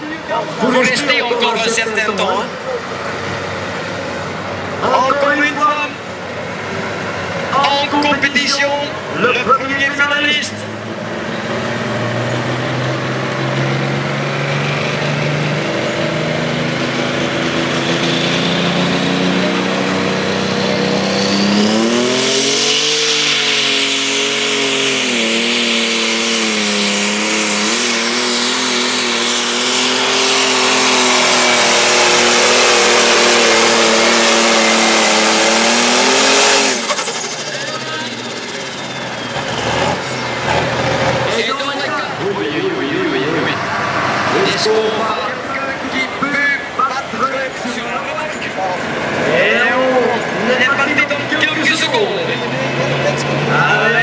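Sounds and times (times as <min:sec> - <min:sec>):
diesel engine revving: 0:00.0 - 0:54.0
thin turbo whine: 0:19.0 - 0:48.6.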